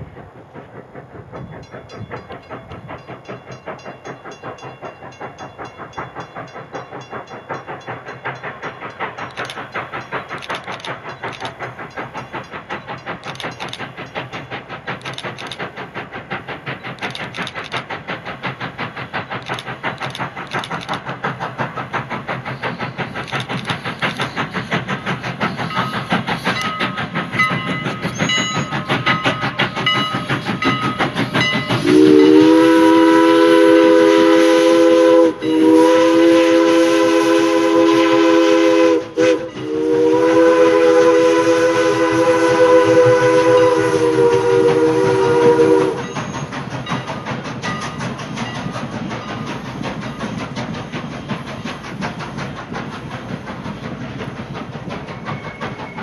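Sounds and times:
steam locomotive chuffing: 0:00.0 - 0:56.0
steam whistle blast: 0:31.8 - 0:46.4.

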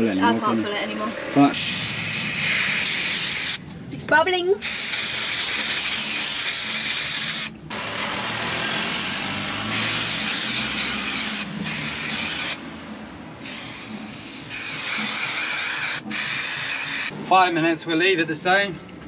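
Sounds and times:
spray can hissing: 0:01.6 - 0:03.6, 0:04.6 - 0:07.5, 0:09.7 - 0:12.6, 0:13.4 - 0:17.1.

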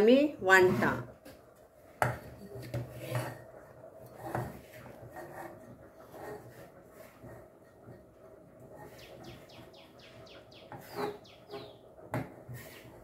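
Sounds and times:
soft scraping and rustling: 0:00.6 - 0:09.1.

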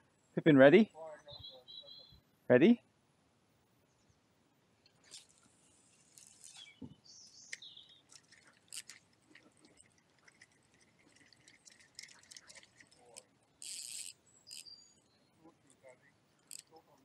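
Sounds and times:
bird chirps: 0:01.2 - 0:02.3, 0:06.2 - 0:08.1, 0:14.2 - 0:15.5
rustling: 0:04.8 - 0:06.8.

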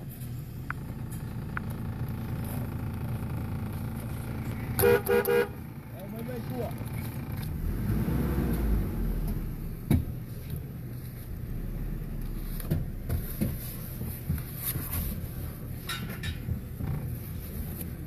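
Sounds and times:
low engine rumble: 0:00.0 - 0:18.0
vehicle body knocks and creaks: 0:09.3 - 0:10.3, 0:12.3 - 0:18.0.

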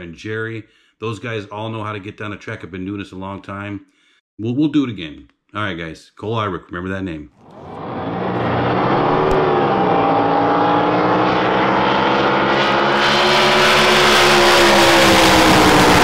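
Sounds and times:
racing engine running: 0:07.4 - 0:16.0.

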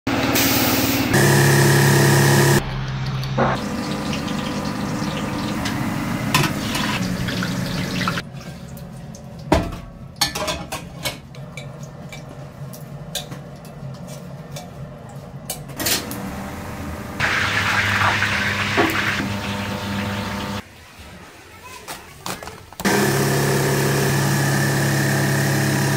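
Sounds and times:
steady machine noise: 0:00.1 - 0:08.2
water pouring: 0:02.7 - 0:09.5, 0:17.2 - 0:20.6.

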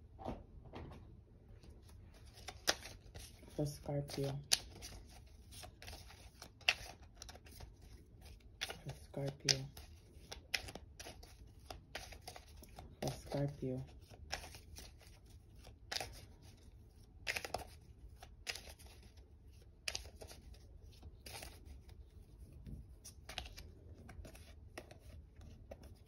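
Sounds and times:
cards being shuffled: 0:01.6 - 0:26.0.

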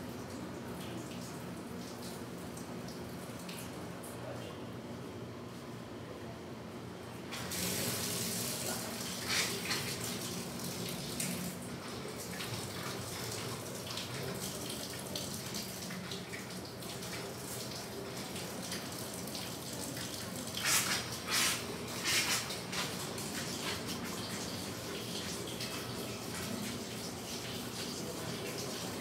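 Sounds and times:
tap water running into sink: 0:07.3 - 0:29.0.

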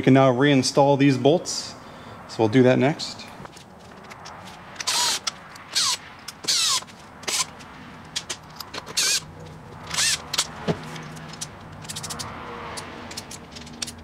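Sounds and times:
cordless drill whirring: 0:04.8 - 0:07.5, 0:09.9 - 0:10.5
hand ratchet clicking: 0:08.1 - 0:14.0.

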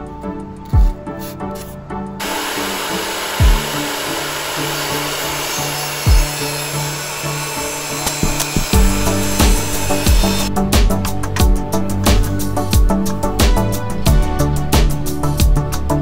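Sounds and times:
background music with steady beat: 0:00.0 - 0:16.0
table saw cutting wood: 0:02.2 - 0:10.5.

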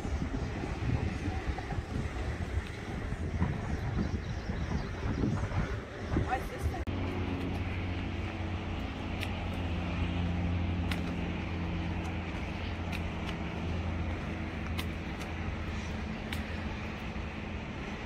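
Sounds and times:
road noise: 0:00.0 - 0:18.0
car engine drone: 0:06.7 - 0:18.0
faint clicks: 0:14.6 - 0:16.6.

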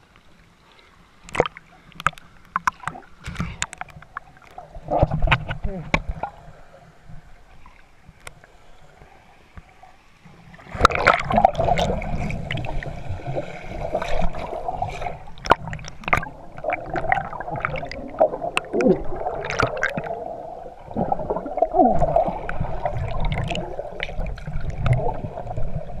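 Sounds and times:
sharp underwater clicks: 0:01.2 - 0:06.3, 0:15.4 - 0:20.1
underwater gurgling and bubbling: 0:10.3 - 0:26.0.

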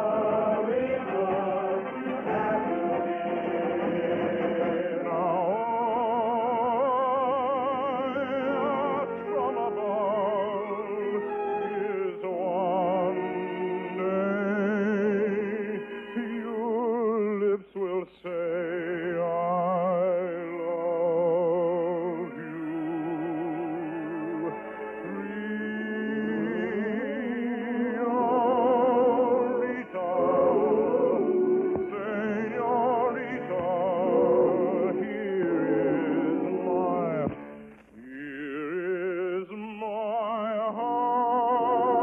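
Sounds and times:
orchestral accompaniment: 0:00.0 - 0:05.6
operatic singing with vibrato: 0:00.0 - 0:42.0.

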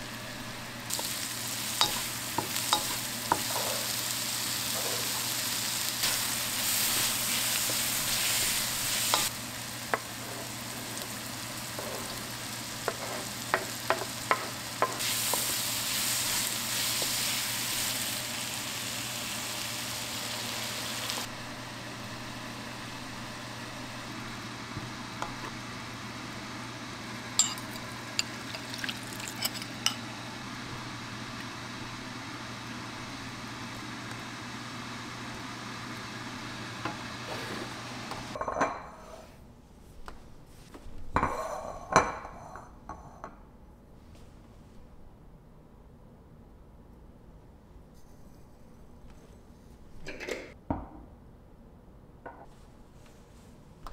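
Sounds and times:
food sizzling in a wok: 0:00.0 - 0:38.4.

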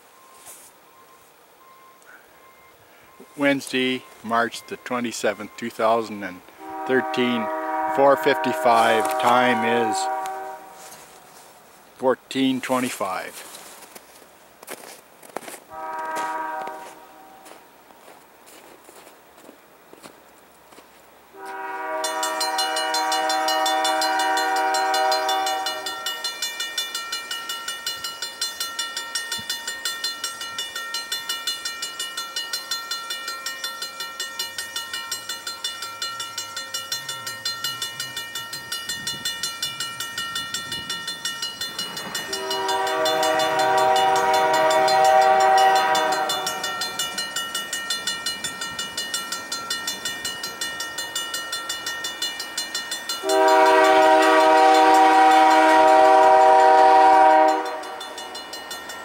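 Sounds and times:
locomotive air horn blasts: 0:06.6 - 0:11.4, 0:15.7 - 0:17.6, 0:21.4 - 0:26.2, 0:42.2 - 0:47.0, 0:53.2 - 0:58.2
rapid ringing bell: 0:22.0 - 0:53.4, 0:57.5 - 0:59.0.

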